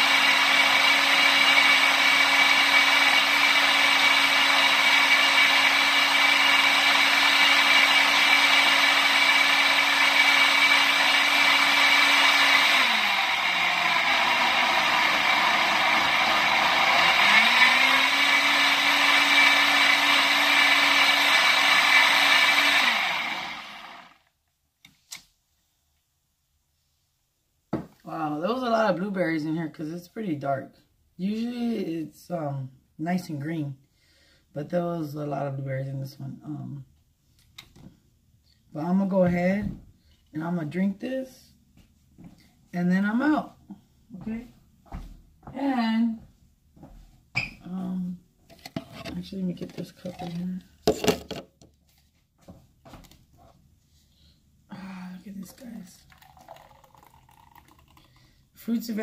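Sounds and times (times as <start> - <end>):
blender motor running: 0.0 - 24.3, 54.8 - 58.2.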